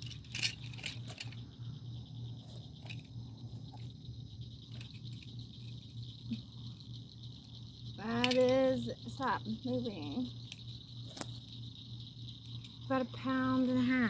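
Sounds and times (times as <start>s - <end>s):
clicks and rustles: 0.0s - 1.4s
night insects trilling: 0.0s - 14.0s.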